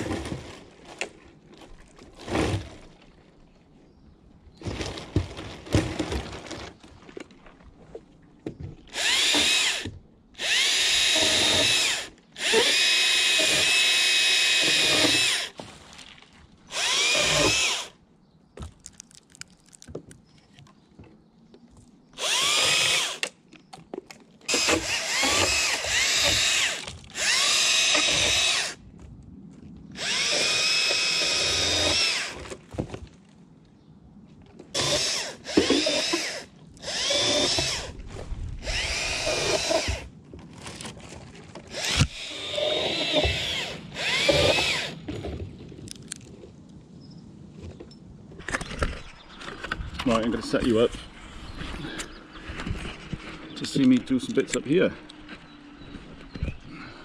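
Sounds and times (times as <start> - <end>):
chainsaw cutting wood: 8.9 - 15.6, 16.7 - 18.0, 22.2 - 23.4, 24.5 - 28.8, 30.0 - 32.5, 34.8 - 38.0, 38.6 - 40.1, 41.7 - 45.1.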